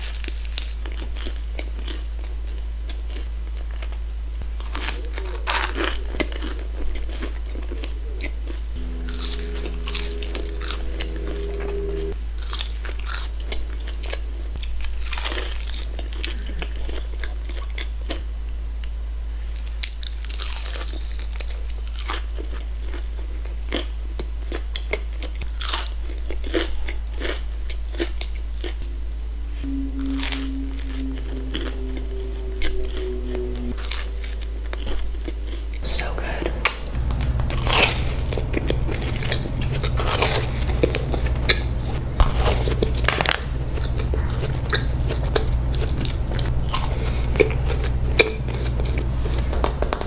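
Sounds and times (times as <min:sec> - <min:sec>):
steady low hum: 0:00.0 - 0:24.5, 0:25.4 - 0:50.0
cluster of held tones: 0:08.8 - 0:12.2, 0:29.6 - 0:42.1.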